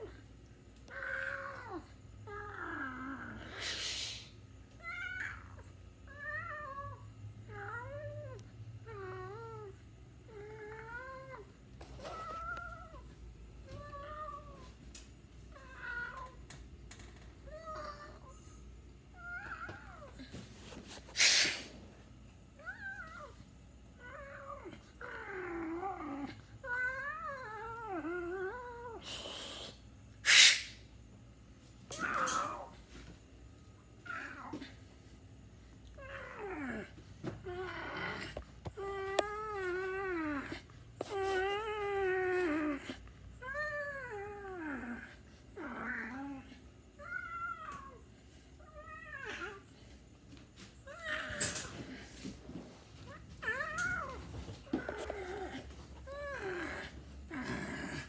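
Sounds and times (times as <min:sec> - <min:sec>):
cat hissing: 0:03.4 - 0:04.4, 0:21.0 - 0:21.8, 0:29.0 - 0:30.8.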